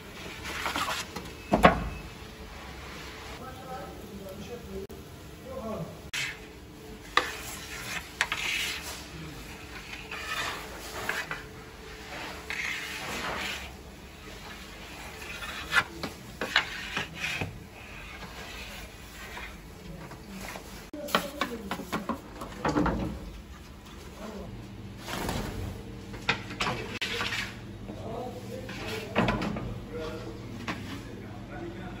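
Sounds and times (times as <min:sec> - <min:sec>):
metal utensil scraping and stirring: 0:06.1 - 0:21.8, 0:26.6 - 0:27.6, 0:28.5 - 0:29.2.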